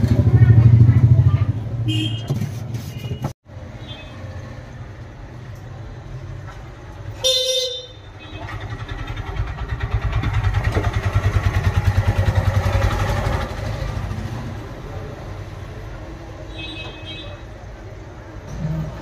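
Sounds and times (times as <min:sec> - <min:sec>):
street traffic hum: 0:00.0 - 0:19.0
vehicle horn: 0:01.9 - 0:04.1, 0:07.2 - 0:08.6.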